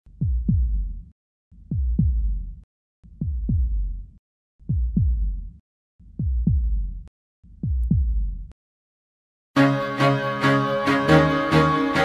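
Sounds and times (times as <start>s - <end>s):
heartbeat deep thumps: 0.1s - 8.5s.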